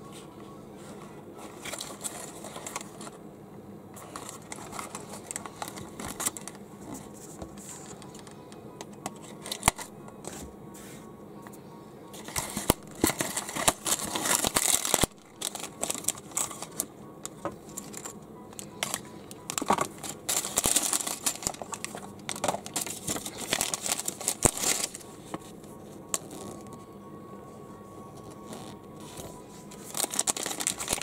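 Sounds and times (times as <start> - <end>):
cardboard box rustling: 0.8 - 3.2, 4.0 - 8.2, 12.2 - 16.9, 18.8 - 25.5, 29.0 - 31.0
plastic bag crinkling: 1.5 - 3.2, 4.0 - 6.6, 12.2 - 25.1, 28.5 - 31.0.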